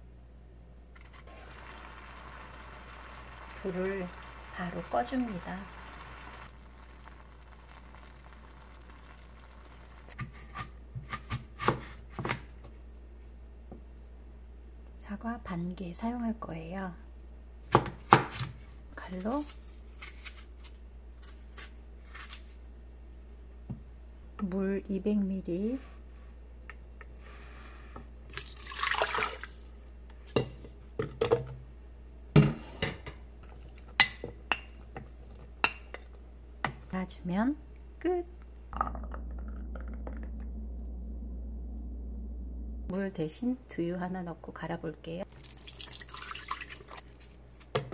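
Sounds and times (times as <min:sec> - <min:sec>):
low steady hum: 0:00.0 - 0:47.9
knife cutting through apple: 0:10.2 - 0:12.4
water pouring into blender jar: 0:28.3 - 0:29.8, 0:45.3 - 0:47.1.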